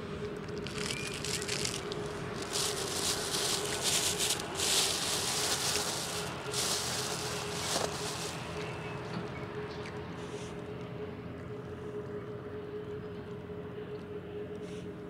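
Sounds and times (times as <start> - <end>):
steady humming tone: 0.0 - 15.0
bike tyres crunching on gravel: 0.6 - 9.4.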